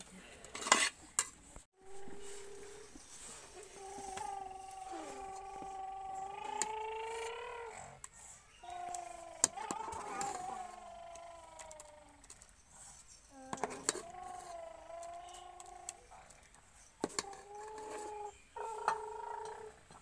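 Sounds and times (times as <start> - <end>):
metal spoon scraping steel pot: 0.5 - 1.0.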